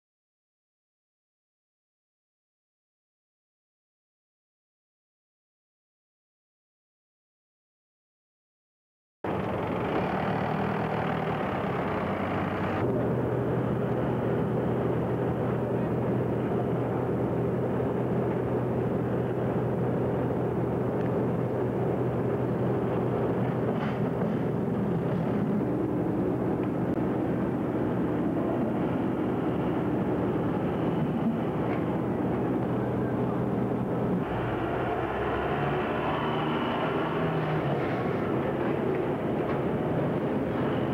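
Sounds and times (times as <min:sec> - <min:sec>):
ship diesel engine droning: 0:09.3 - 0:40.9.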